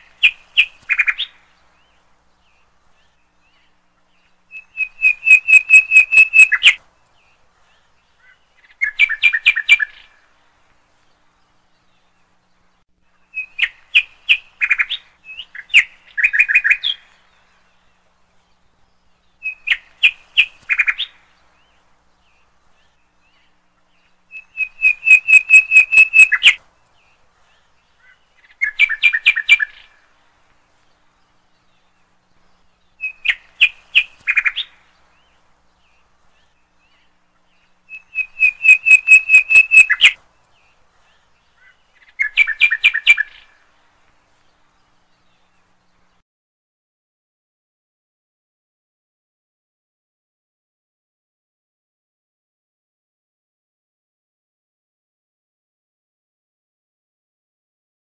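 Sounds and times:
bird chirping: 0.0 - 46.2.

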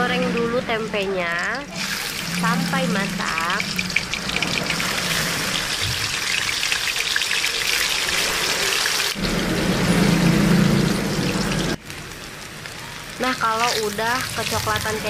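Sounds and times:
low hum: 0.0 - 6.2, 9.2 - 12.6
food deep-frying in oil: 0.0 - 15.0.

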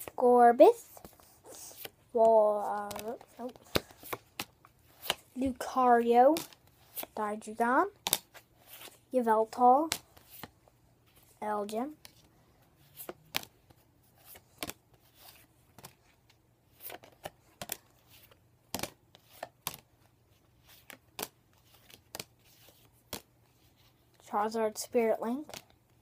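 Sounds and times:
cards flicking against cards: 2.8 - 5.2, 13.0 - 13.5, 14.2 - 16.0, 16.8 - 19.8, 20.6 - 23.3.

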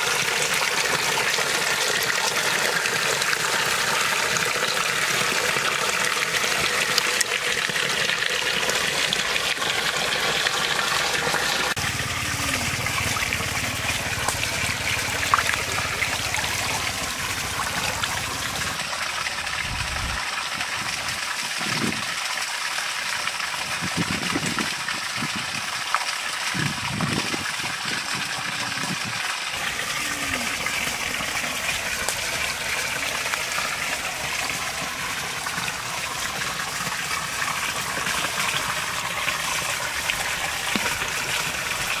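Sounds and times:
small waterfall: 0.0 - 42.0
water pouring from spouts: 0.0 - 42.0
water sloshing: 8.5 - 18.8.

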